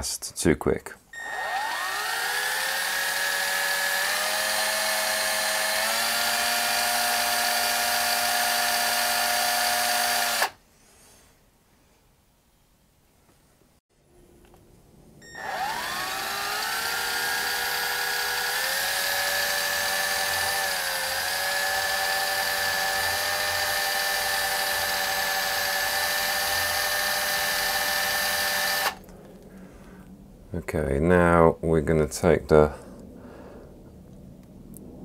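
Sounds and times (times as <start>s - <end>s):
electric drill whining: 1.2s - 10.6s, 15.2s - 29.1s.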